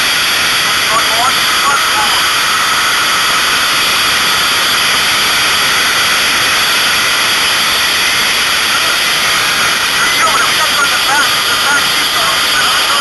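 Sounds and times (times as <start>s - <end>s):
loud steady rushing hiss: 0.0s - 13.0s.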